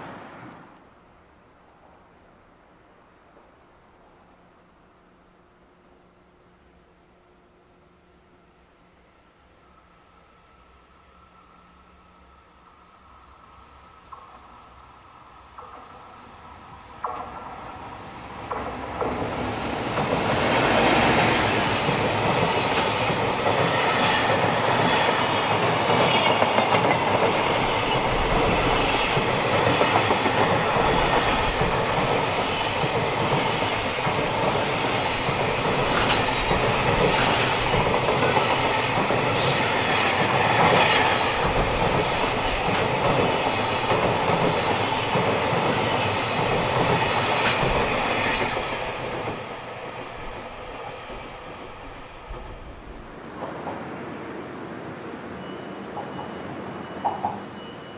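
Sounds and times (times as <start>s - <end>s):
electric locomotive passing: 0.0s - 57.9s
train wheels clicking over rail joints: 15.4s - 54.0s.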